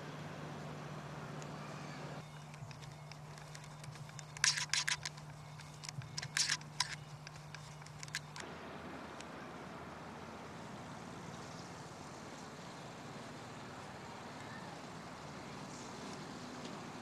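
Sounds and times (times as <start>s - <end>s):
cable reel clicking and rattling: 2.2s - 8.4s.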